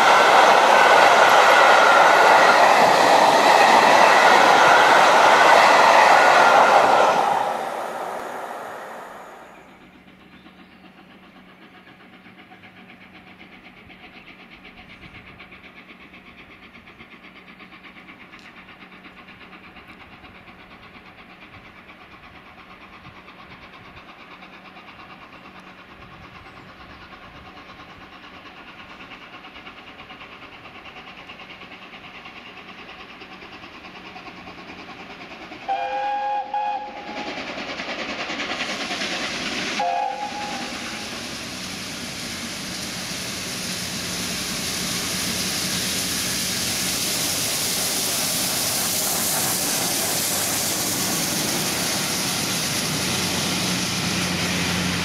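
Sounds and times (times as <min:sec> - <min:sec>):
steam locomotive rumbling: 0:00.0 - 0:55.0
steam whistle: 0:35.6 - 0:37.4, 0:39.8 - 0:41.2.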